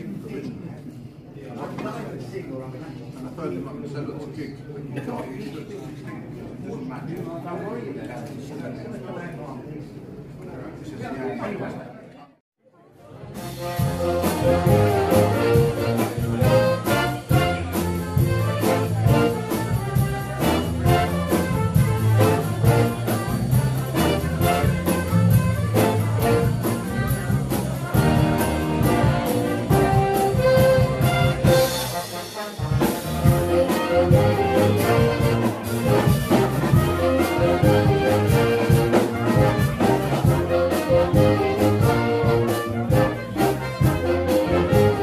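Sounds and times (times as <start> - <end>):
big band jazz: 13.3 - 45.0
drum beat: 13.6 - 45.0.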